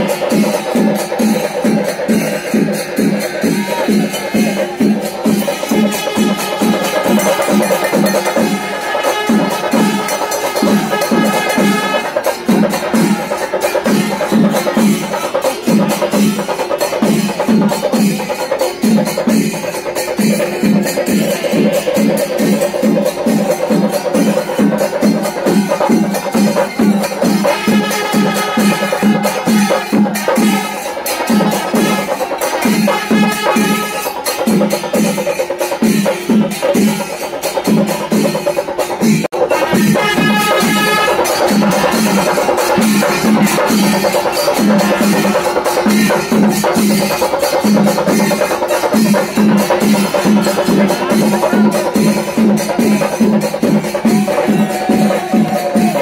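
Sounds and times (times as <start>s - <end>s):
steady drum beat: 0.0s - 56.0s.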